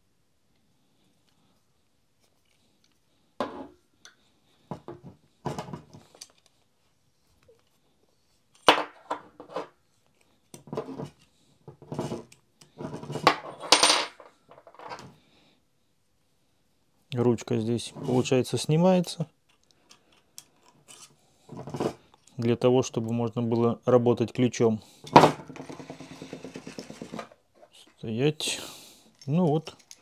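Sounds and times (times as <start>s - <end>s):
metallic clinks and scrapes: 19.9s - 22.3s, 29.1s - 30.0s.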